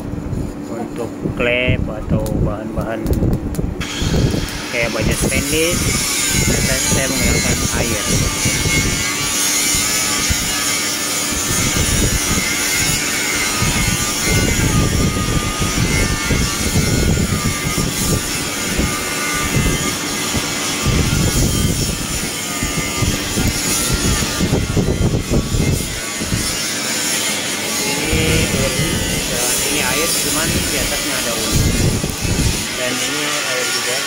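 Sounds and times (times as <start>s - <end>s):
forge air blower drone: 0.0s - 34.0s.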